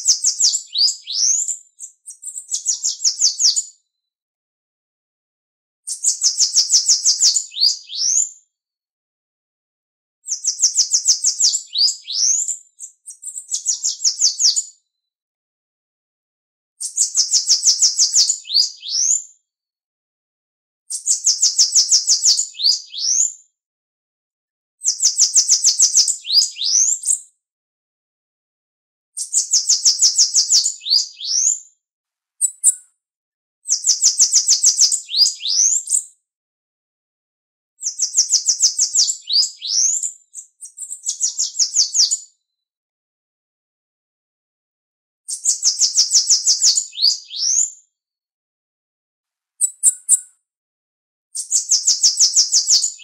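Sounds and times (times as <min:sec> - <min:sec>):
bird singing buzzy trill: 0:00.0 - 0:03.6, 0:05.9 - 0:08.3, 0:10.3 - 0:14.6, 0:24.9 - 0:27.2, 0:29.2 - 0:31.5, 0:32.4 - 0:32.8, 0:33.7 - 0:36.0, 0:37.9 - 0:42.2, 0:45.3 - 0:47.7, 0:49.6 - 0:50.3.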